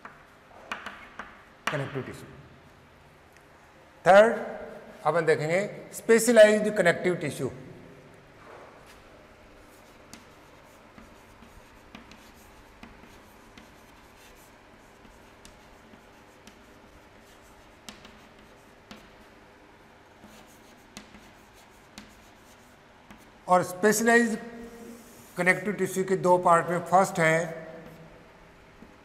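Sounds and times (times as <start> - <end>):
chalk tapping and scratching: 0.0 - 2.0, 9.6 - 19.4, 20.2 - 23.8, 24.4 - 25.7, 27.8 - 28.1, 28.8 - 29.0
low room hum: 0.0 - 29.0.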